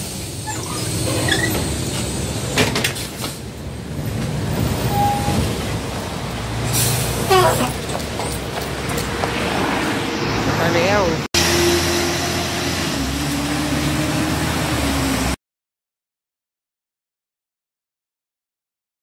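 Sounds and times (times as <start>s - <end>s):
bus engine idling: 0.0s - 9.4s
road rumble: 0.0s - 15.4s.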